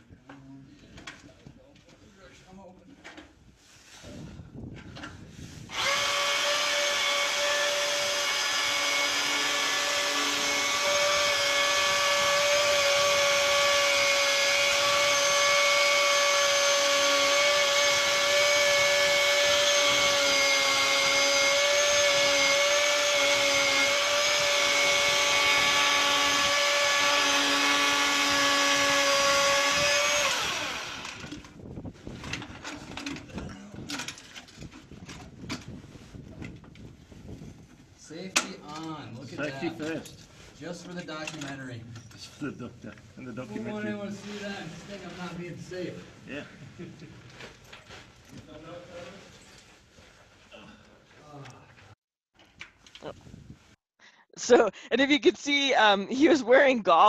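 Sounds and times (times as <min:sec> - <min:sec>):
electric chainsaw cutting ice: 0:05.7 - 0:31.6.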